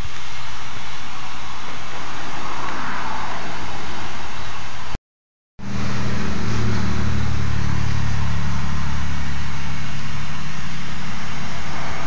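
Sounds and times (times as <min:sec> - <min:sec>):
constant mechanical hiss: 0:00.0 - 0:05.0, 0:05.6 - 0:12.0
low mechanical hum: 0:05.6 - 0:12.0.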